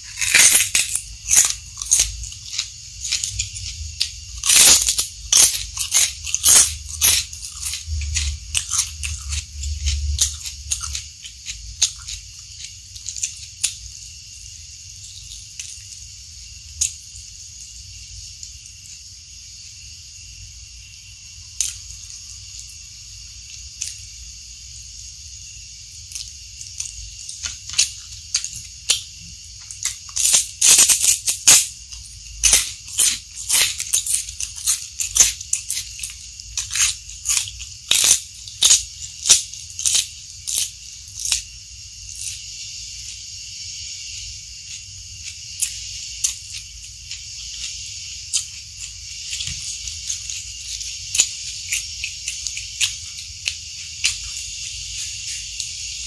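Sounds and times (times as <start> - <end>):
crunchy chewing of vegetables: 0.0 - 56.0
steady high hiss: 0.0 - 56.0.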